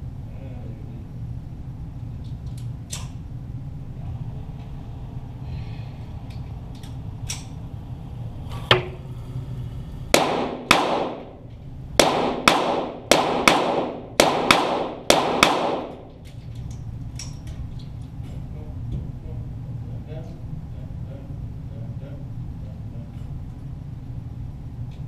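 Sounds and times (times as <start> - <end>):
pistol shots with echo: 10.1 - 11.4, 12.0 - 16.1.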